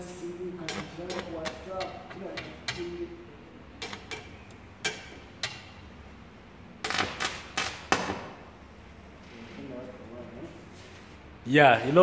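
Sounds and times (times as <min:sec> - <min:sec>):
welding arc cracking and popping: 0:00.7 - 0:02.2, 0:03.8 - 0:05.6, 0:06.8 - 0:08.3.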